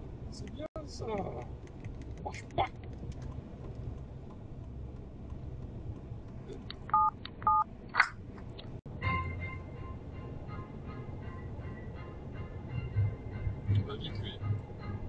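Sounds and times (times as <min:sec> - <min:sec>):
car cabin road noise: 0:00.0 - 0:15.0
two-tone electronic beeps: 0:06.9 - 0:07.7.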